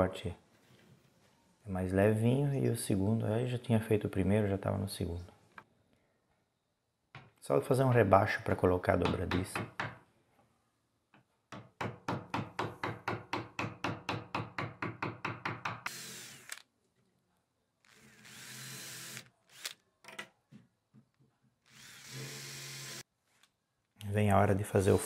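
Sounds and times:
cordless drill drilling wood: 15.9 - 16.6, 17.9 - 19.8, 21.7 - 23.0.

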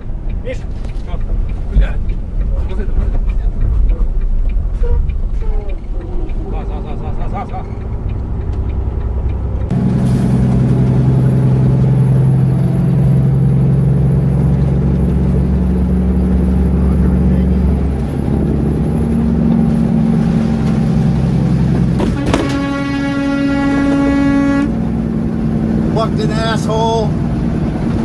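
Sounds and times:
vehicle engine droning: 0.0 - 28.0
vehicle horn long note: 22.0 - 24.8.

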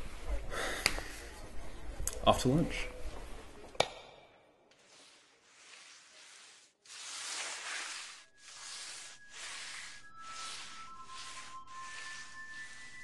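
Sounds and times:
mop swishing on hard floor: 4.7 - 13.0.

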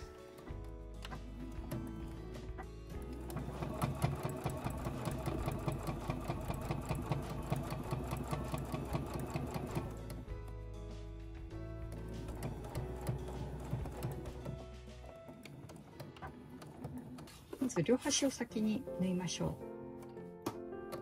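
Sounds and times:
background music: 0.0 - 21.0
sewing machine stitching: 3.0 - 10.3, 11.9 - 14.6.

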